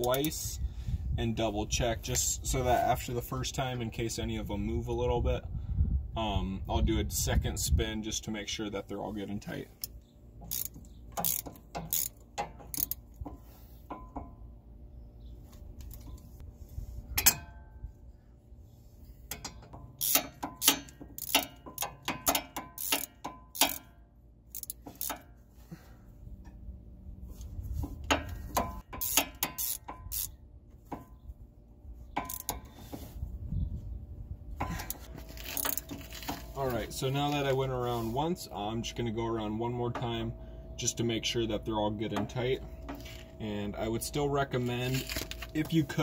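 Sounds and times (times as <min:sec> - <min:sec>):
socket ratchet clicking: 0:10.5 - 0:13.0, 0:19.3 - 0:23.9, 0:24.5 - 0:25.2, 0:28.8 - 0:30.3.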